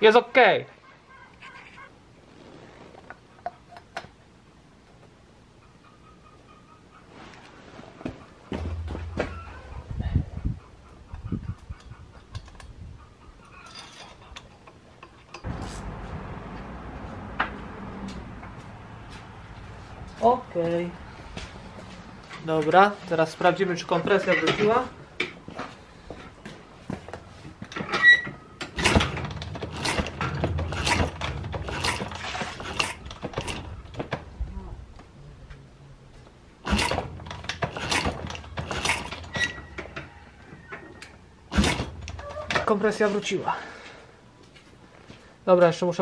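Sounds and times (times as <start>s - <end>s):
steady low hum: 8.2s - 12.2s
low rumble: 15.4s - 20.2s
engine compression strokes: 28.8s - 33.7s, 36.6s - 39.7s, 41.5s - 42.2s.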